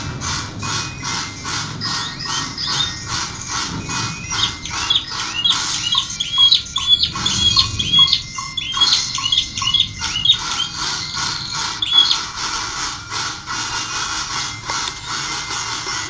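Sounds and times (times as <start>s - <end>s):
canary singing: 0.8s - 12.6s.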